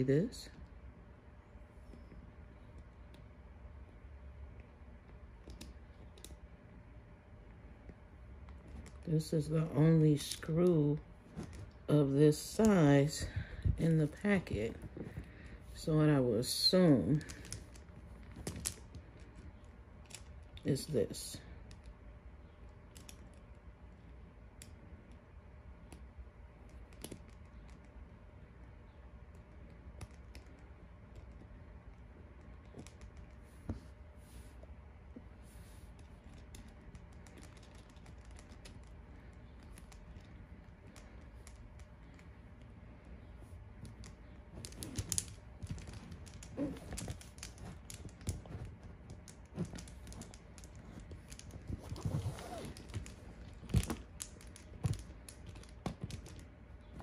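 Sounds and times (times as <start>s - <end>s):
resin pieces clicking and tapping: 4.5s - 6.4s, 17.1s - 20.6s, 21.6s - 25.2s, 25.8s - 28.1s, 28.9s - 33.8s, 35.9s - 57.0s.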